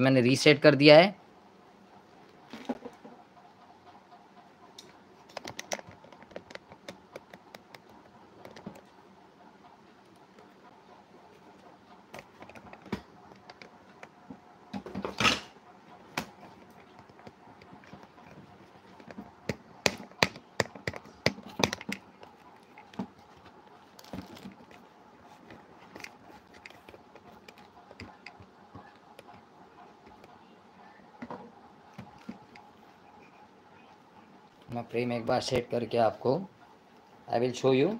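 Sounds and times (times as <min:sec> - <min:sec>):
phone handling clicks and knocks: 0:05.3 - 0:08.8, 0:19.0 - 0:22.1.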